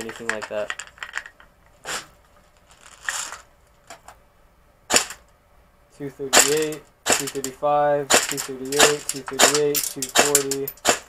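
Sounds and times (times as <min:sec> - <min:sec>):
airsoft rifle shots: 0:04.9 - 0:05.2, 0:06.4 - 0:07.5, 0:08.1 - 0:11.0.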